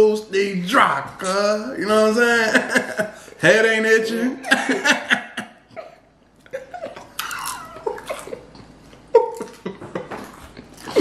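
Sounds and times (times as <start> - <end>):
men laughing: 2.3 - 3.3, 4.4 - 10.7.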